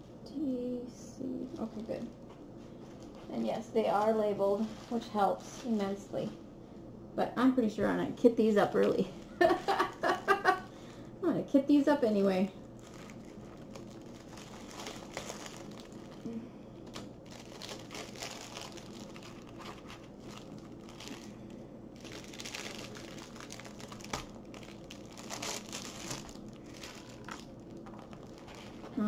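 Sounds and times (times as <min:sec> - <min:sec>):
plastic packaging crinkling: 0:01.5 - 0:02.3, 0:08.6 - 0:10.7, 0:12.6 - 0:29.0.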